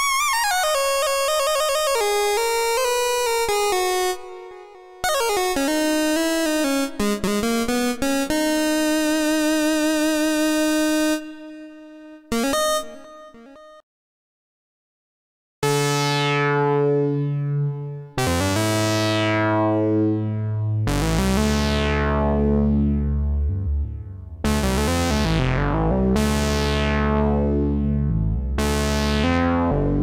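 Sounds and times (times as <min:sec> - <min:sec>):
synthesizer sustained notes: 0:15.8 - 0:30.0.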